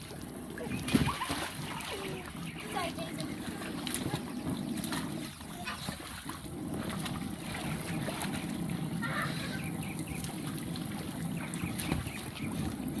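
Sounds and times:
water splashing and sloshing: 0.0s - 13.0s
children giggling and squealing: 0.6s - 4.4s, 8.9s - 9.9s.

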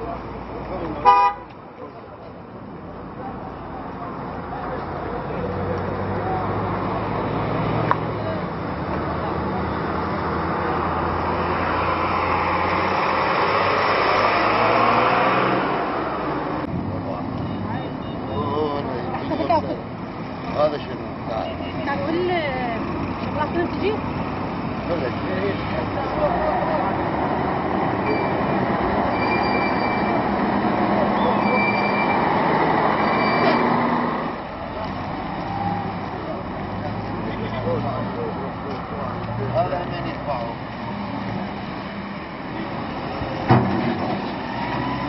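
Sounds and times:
tractor engines running: 1.6s - 45.0s
high-pitched squeals: 28.0s - 30.3s, 31.1s - 34.0s.

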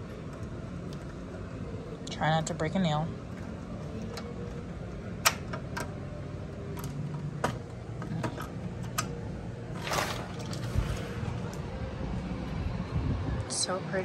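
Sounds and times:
sliding door scraping open: 9.7s - 11.7s.

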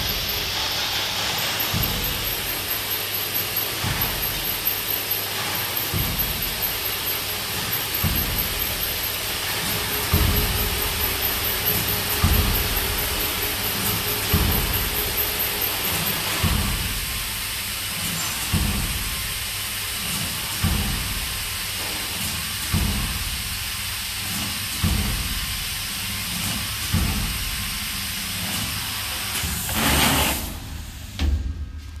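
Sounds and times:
gasket cutting machine hissing: 0.0s - 31.5s
rush of noise and thump: 9.6s - 10.7s.

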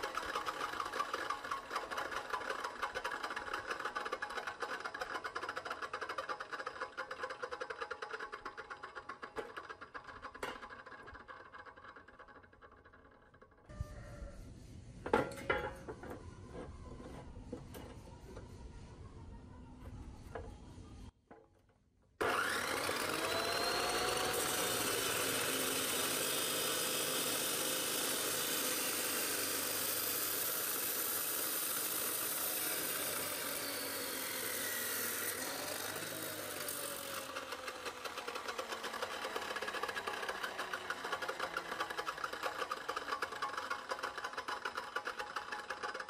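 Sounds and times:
cut-off saw grinding steel: 22.2s - 46.0s.

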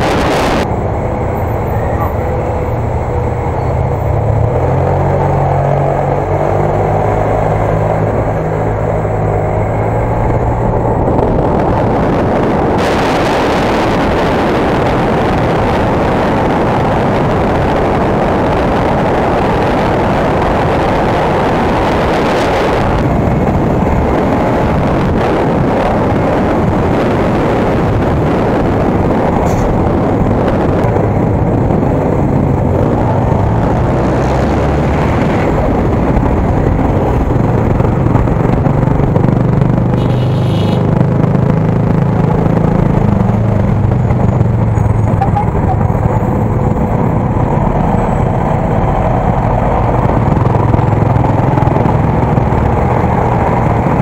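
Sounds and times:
wind rushing on microphone: 0.0s - 54.0s
motorcycle engine running: 35.8s - 54.0s.

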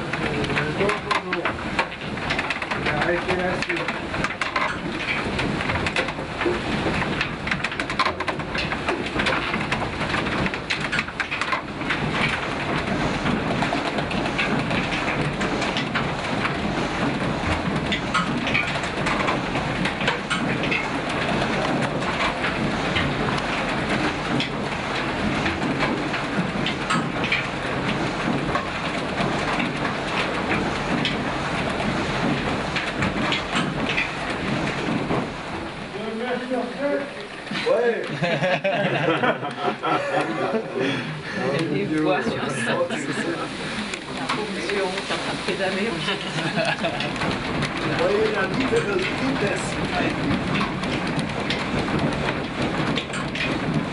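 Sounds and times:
rattling gear wheels: 0.0s - 53.9s
water rushing: 11.8s - 53.2s.

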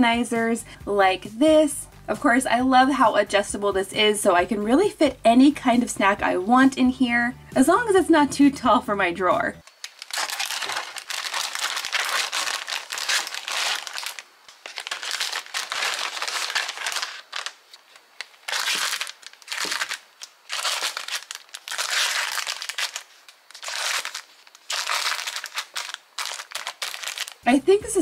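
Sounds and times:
plastic snack packets crinkling: 9.6s - 27.5s.

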